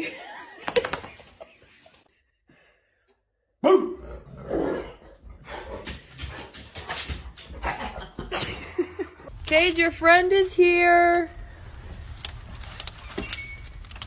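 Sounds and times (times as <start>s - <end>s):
dog barking: 3.6s - 4.0s.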